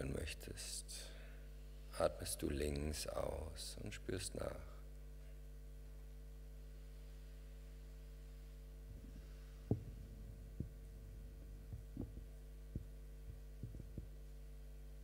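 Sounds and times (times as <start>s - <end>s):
mains hum: 0.0s - 15.0s
microphone handling knocks: 8.9s - 14.3s.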